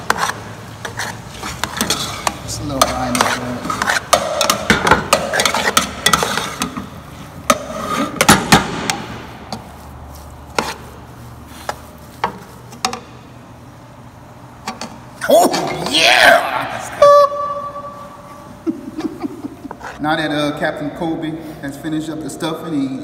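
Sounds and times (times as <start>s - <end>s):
metal spoon stirring in pot: 0.0s - 8.3s, 9.5s - 13.2s.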